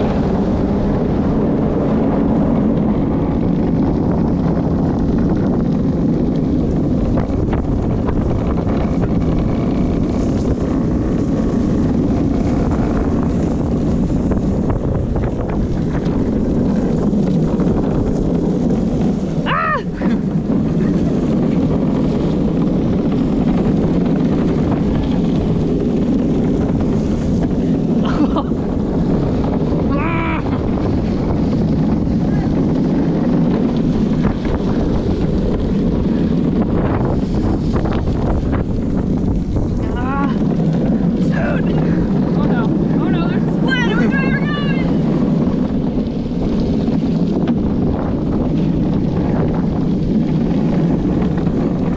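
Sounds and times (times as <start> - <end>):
cart wheels rumbling on concrete: 0.0 - 51.9
wind rushing over camera: 0.0 - 51.9
person shouting: 19.5 - 20.1, 29.9 - 30.6.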